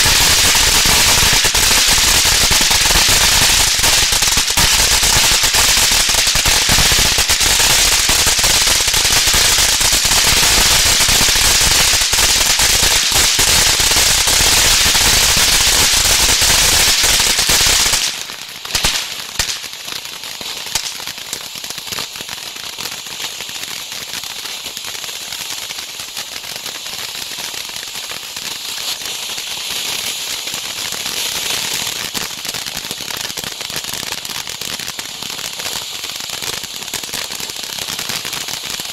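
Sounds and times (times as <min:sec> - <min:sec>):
firework pops: 0:00.0 - 0:22.2
firework fountain crackling: 0:00.0 - 0:38.9.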